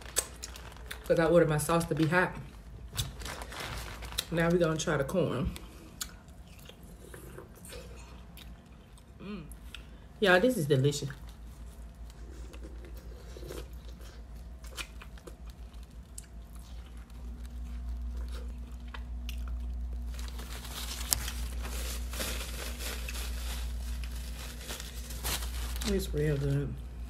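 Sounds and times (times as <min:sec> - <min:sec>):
paper napkin rustling: 0:03.0 - 0:04.3, 0:20.1 - 0:26.8
chewing corn cob: 0:11.0 - 0:21.6.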